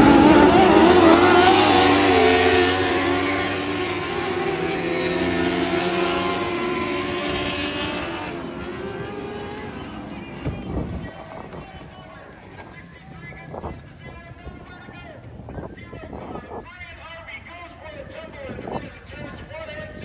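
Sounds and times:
racing engines revving: 0.0s - 12.4s.

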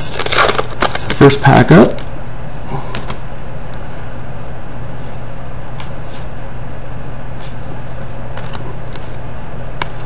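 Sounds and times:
cards flipped by hand: 7.4s - 9.2s.

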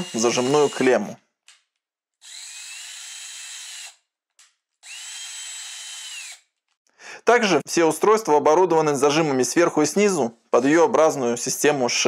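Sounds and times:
electric screwdriver motor whine: 0.0s - 0.9s, 2.2s - 4.0s, 4.8s - 6.5s.

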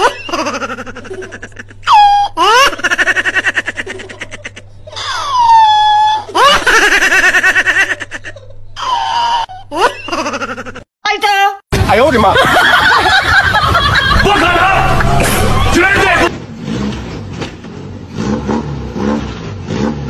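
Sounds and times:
person laughing loudly: 0.0s - 10.9s, 12.2s - 16.3s.

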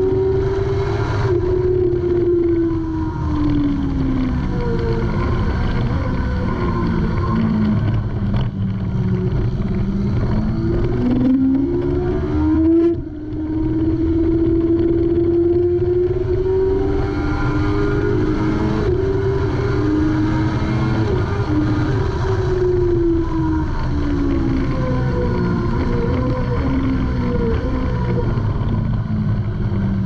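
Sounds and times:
motorcycle engine accelerating: 0.0s - 30.0s.

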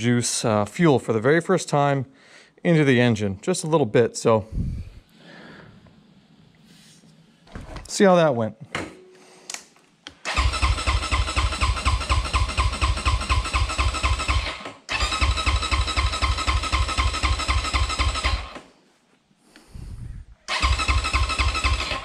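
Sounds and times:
electric starter cranking engine: 10.2s - 18.7s, 20.5s - 22.0s.

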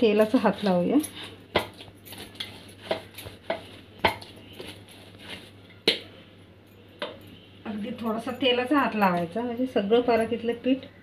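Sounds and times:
hands pressing dough: 0.1s - 6.1s.

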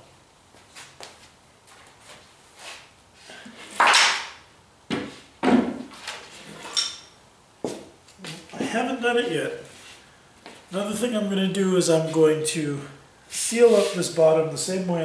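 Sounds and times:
tape tearing off roll: 3.6s - 4.4s.

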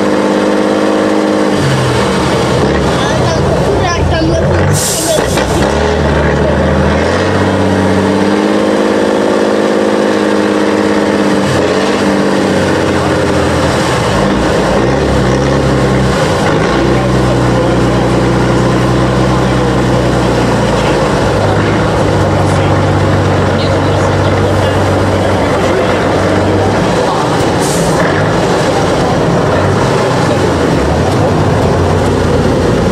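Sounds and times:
truck diesel engine under load: 0.0s - 32.9s.

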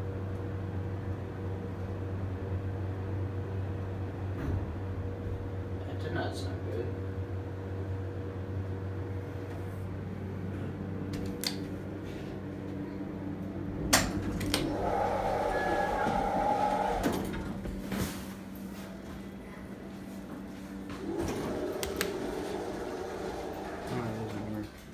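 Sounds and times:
elevator hum: 0.0s - 24.9s
elevator doors sliding open: 13.7s - 18.2s, 20.9s - 24.9s.

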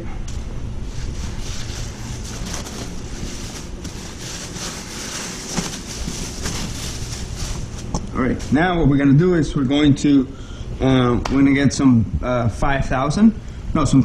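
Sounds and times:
ventilation air rushing: 0.0s - 14.0s
cloth rubbing on car panel: 0.8s - 7.9s.

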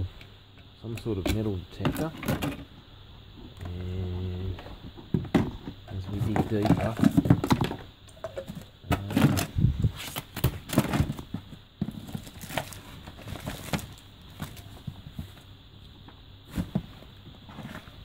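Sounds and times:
plastic and paper rustling: 9.0s - 15.4s.

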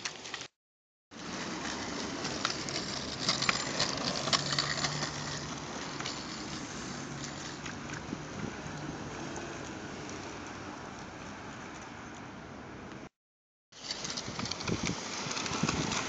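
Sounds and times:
wheels clicking over slab joints: 1.2s - 11.1s, 13.8s - 16.0s
go-kart wheels rumbling on concrete: 1.2s - 11.9s, 13.8s - 16.0s.

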